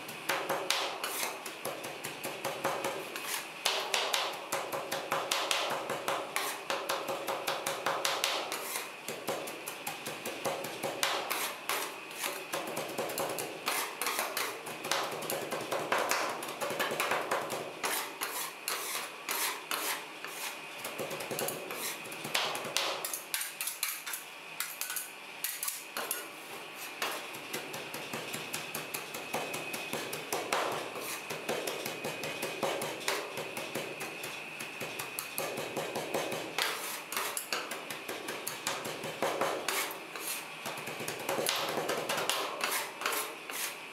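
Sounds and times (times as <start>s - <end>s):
metal spatulas tapping and scraping: 0.3s - 26.3s, 26.9s - 43.8s.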